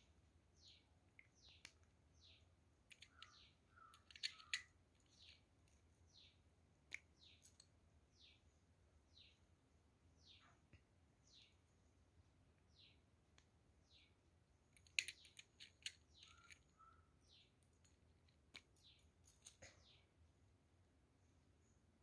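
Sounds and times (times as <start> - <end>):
bird chirping: 0.0 - 9.5, 10.1 - 11.9, 12.6 - 13.1, 13.8 - 20.2
plastic caps clicking: 2.9 - 5.8, 14.8 - 16.7.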